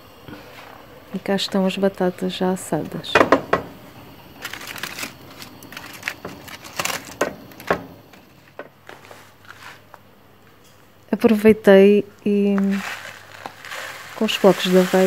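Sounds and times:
aluminium foil crinkling: 4.3s - 10.0s, 12.2s - 15.0s.

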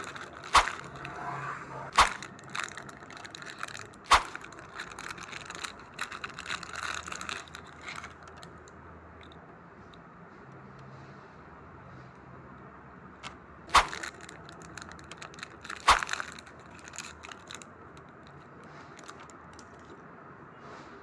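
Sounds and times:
sharp plastic cracks: 0.0s - 1.2s, 1.9s - 8.5s, 13.2s - 17.7s
plastic bag crinkling: 0.0s - 1.3s, 1.9s - 8.7s, 13.7s - 19.9s.

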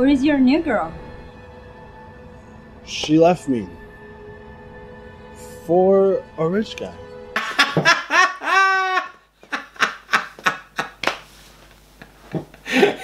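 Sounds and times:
man laughing hard: 7.4s - 11.2s, 12.5s - 13.0s.

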